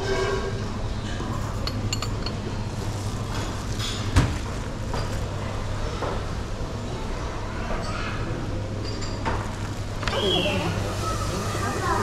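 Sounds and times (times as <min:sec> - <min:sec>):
clinks of china and tableware: 0:01.5 - 0:02.4, 0:08.8 - 0:09.4.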